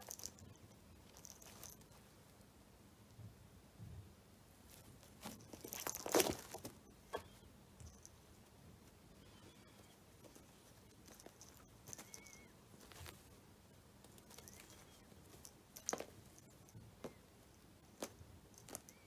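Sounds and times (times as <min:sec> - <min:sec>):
faint high chirps: 0:06.7 - 0:08.1, 0:09.0 - 0:13.2, 0:14.1 - 0:17.3.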